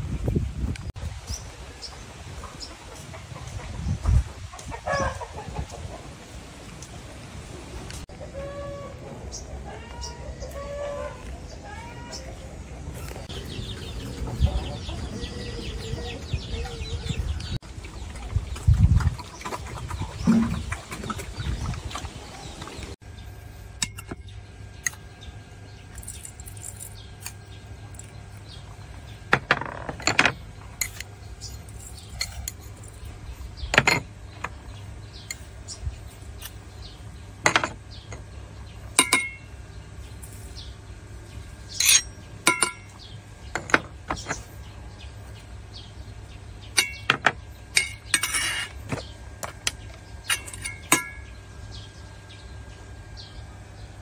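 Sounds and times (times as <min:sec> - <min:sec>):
steady low hum: 0:00.0 - 0:54.0
metal spoon clinking on bowl: 0:39.0 - 0:39.4, 0:41.8 - 0:42.9, 0:50.3 - 0:51.3.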